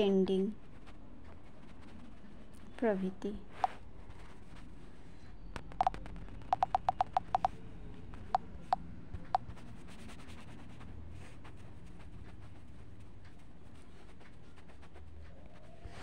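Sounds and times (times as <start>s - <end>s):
low steady background hum: 0.0s - 16.0s
taps on a touchscreen: 5.6s - 7.6s.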